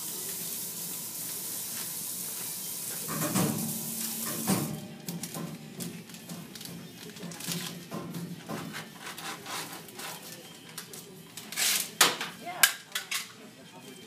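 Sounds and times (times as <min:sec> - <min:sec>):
rustling and handling noises: 0:04.4 - 0:12.0.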